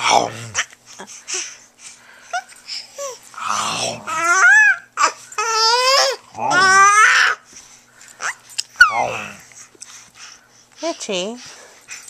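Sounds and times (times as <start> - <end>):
baby squealing with laughter: 4.1 - 7.4.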